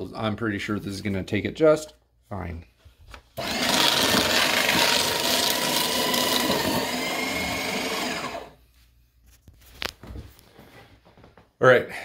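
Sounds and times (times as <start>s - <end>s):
paper shredder shredding paper: 3.4s - 8.6s.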